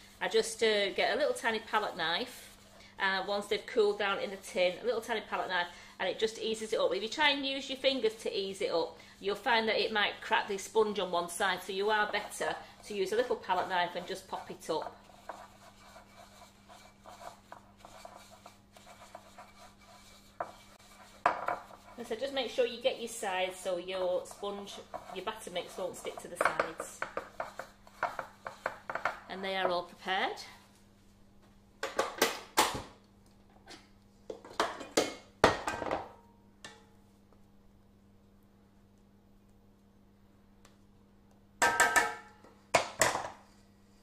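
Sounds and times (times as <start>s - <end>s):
tissue rubbing metal baking tin: 0.0s - 29.3s.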